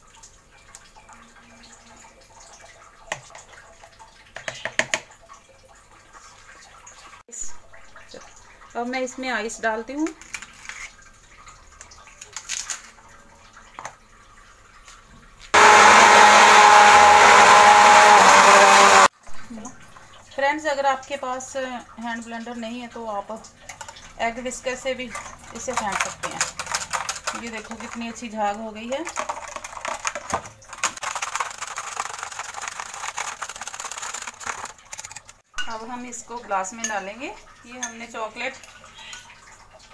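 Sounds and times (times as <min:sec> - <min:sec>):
electric hand blender running: 0:15.6 - 0:19.1
metal spoon clattering in jar: 0:25.1 - 0:28.2
ice cubes knocking in jug: 0:25.2 - 0:35.4.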